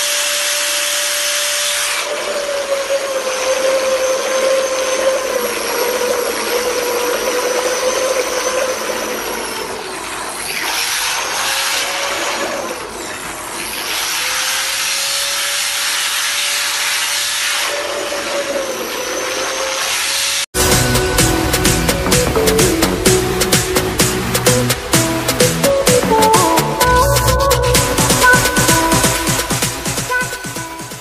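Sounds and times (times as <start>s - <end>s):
power tool motor whine: 0.0s - 21.5s
water churning and splashing: 0.8s - 31.0s.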